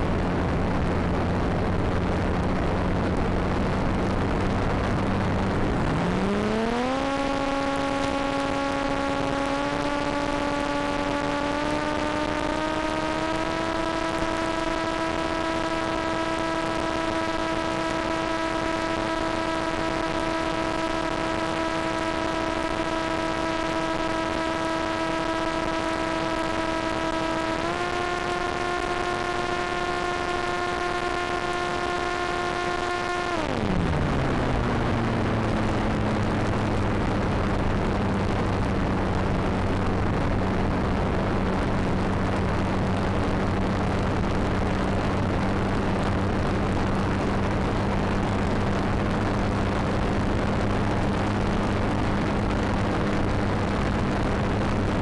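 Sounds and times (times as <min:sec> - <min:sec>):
model plane electric motor whine: 0:05.9 - 0:35.7.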